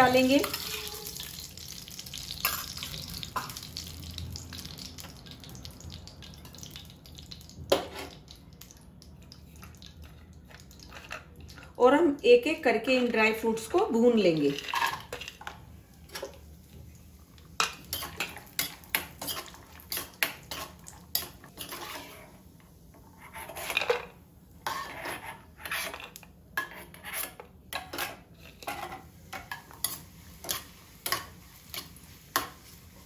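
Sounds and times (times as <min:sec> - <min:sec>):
spoon clicking and scraping pan: 0:17.6 - 0:22.1, 0:23.3 - 0:32.6.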